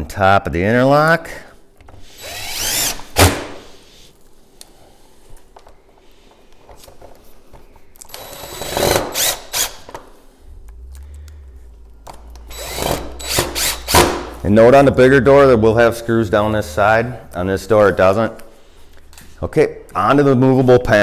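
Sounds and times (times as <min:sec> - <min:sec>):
power drill whirring: 0:02.0 - 0:03.7, 0:08.1 - 0:09.9, 0:12.4 - 0:14.3.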